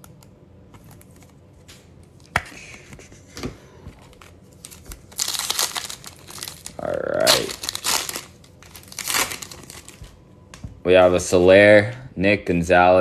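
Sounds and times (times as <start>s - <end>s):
foil pack crinkling torn open: 4.2s - 10.1s.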